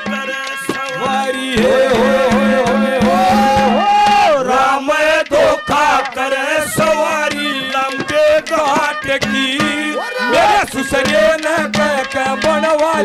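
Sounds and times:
drum beating quick rhythm: 0:00.0 - 0:13.0
man singing into a microphone: 0:00.0 - 0:13.0.

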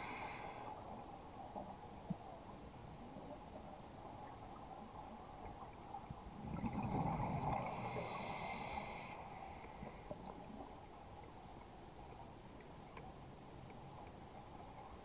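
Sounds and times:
low underwater background: 0:00.0 - 0:15.0
rush of bubbles: 0:06.4 - 0:08.4
diver breathing through regulator: 0:07.5 - 0:10.1.

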